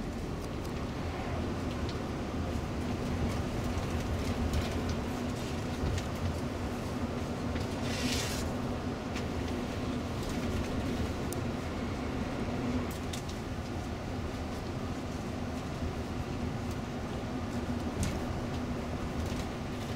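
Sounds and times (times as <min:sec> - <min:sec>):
constant hum: 0:00.0 - 0:19.9
engine and road rumble: 0:00.0 - 0:19.9.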